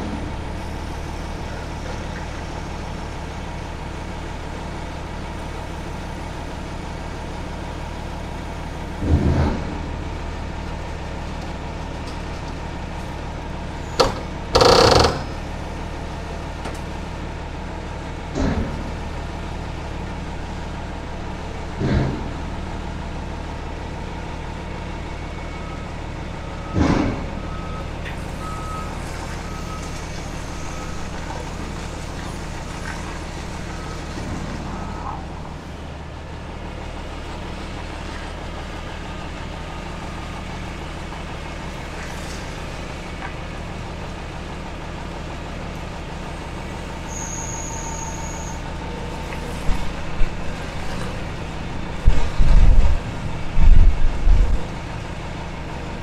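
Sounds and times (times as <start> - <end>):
diesel engines idling: 0.0 - 56.0
reversing alarm beeping: 14.6 - 15.3, 25.1 - 31.2
heavy metal knocks and clanks: 21.7 - 22.6.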